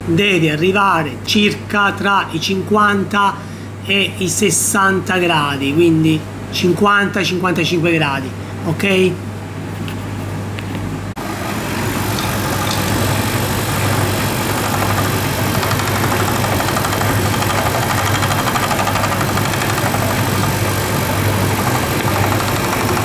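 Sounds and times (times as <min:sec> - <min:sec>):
tumble dryer motor hum: 0:10.4 - 0:23.0
pulley mechanical noise: 0:11.8 - 0:23.0.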